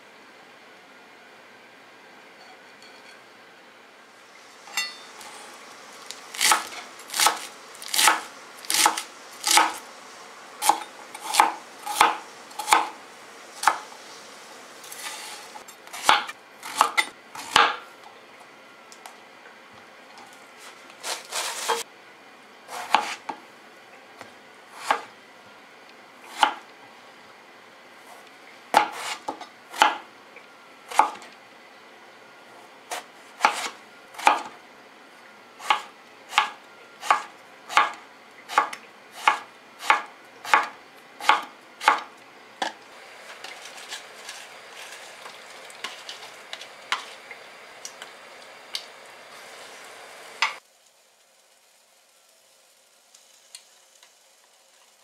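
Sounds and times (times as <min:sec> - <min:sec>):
knife chopping on cutting board: 0:06.3 - 0:09.8, 0:10.6 - 0:13.0, 0:13.6 - 0:13.8, 0:15.0 - 0:17.8, 0:22.7 - 0:23.4, 0:24.8 - 0:25.1, 0:26.3 - 0:26.6, 0:28.8 - 0:30.0, 0:30.9 - 0:31.2, 0:32.9 - 0:34.5, 0:35.6 - 0:42.8.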